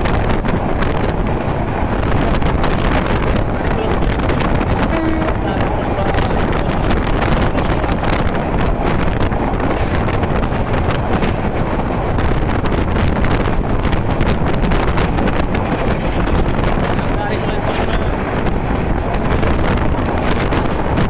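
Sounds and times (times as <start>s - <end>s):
clicks and knocks of train: 0.0s - 21.0s
train running noise: 0.0s - 21.0s
wind buffeting microphone: 0.0s - 21.0s.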